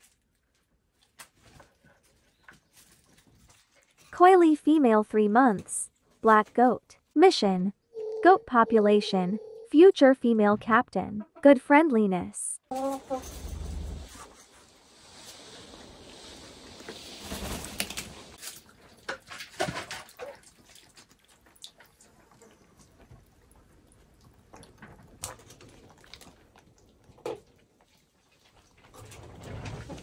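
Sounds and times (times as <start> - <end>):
small water splashes and drips: 18.4 - 28.8.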